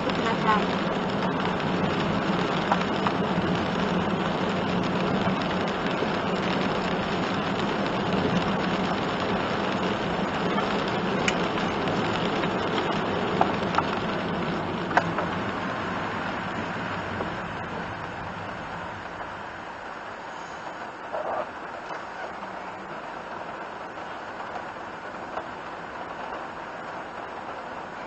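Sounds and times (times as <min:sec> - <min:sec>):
rain on vehicle: 0:00.0 - 0:28.0
tyre noise on wet road: 0:00.0 - 0:28.0
light ticks: 0:10.5 - 0:14.1.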